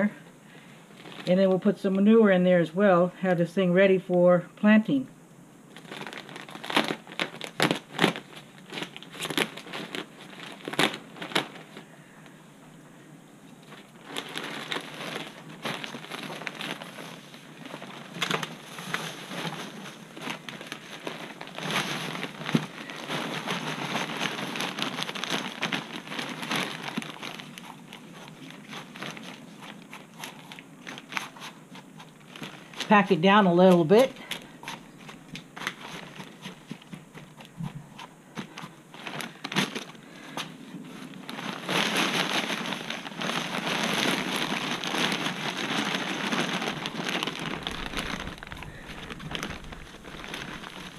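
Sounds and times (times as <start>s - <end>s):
plastic bag crinkling: 0.8s - 2.2s, 5.7s - 12.4s, 13.6s - 50.9s
potting soil pouring: 13.7s - 39.9s, 41.0s - 50.9s.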